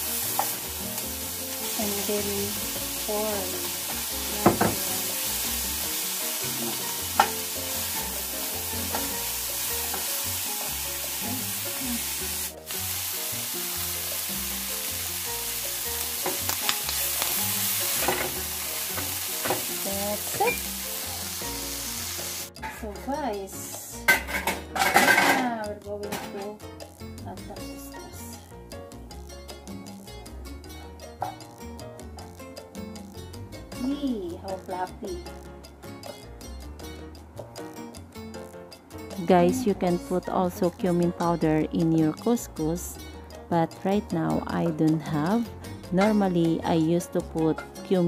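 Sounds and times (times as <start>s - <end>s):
vegetables sizzling in frying pan: 0.0s - 22.7s.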